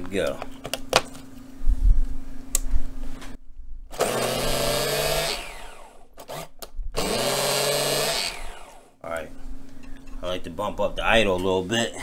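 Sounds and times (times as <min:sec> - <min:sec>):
electric starter motor whine: 0:03.9 - 0:09.0.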